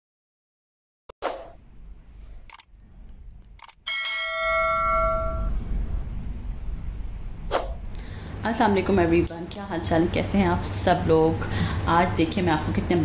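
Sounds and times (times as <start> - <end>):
bell ding: 3.9 - 5.5
low rumbling noise: 4.7 - 11.6.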